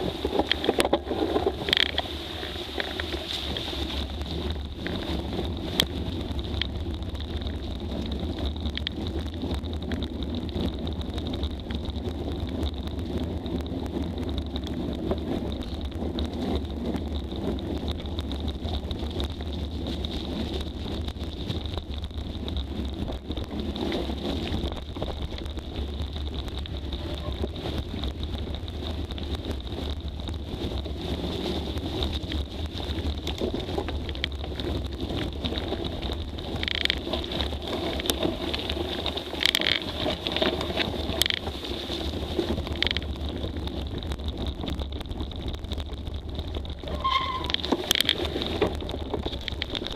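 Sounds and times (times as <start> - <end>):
bike crunching over dirt: 0.0 - 49.9
bike rattles and knocks: 0.0 - 49.9
wind buffeting microphone: 0.0 - 49.9.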